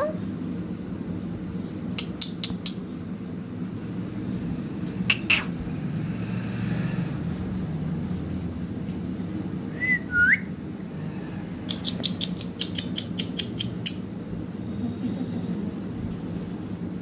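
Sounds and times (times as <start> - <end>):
low background hum: 0.0 - 17.0
sharp clicks: 1.9 - 2.8, 11.6 - 14.0
parakeet whistling: 9.7 - 10.5.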